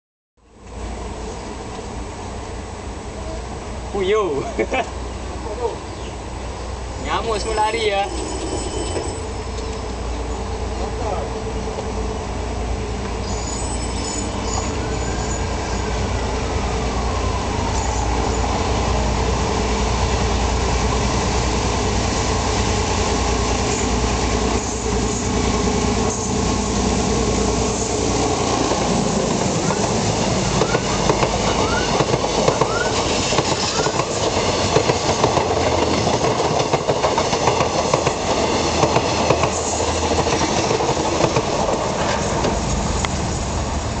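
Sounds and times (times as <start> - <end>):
diesel locomotive engine rumble: 0.4 - 44.0
wheel squeals: 7.3 - 10.4, 13.2 - 16.0
train wheels clattering: 28.2 - 43.3.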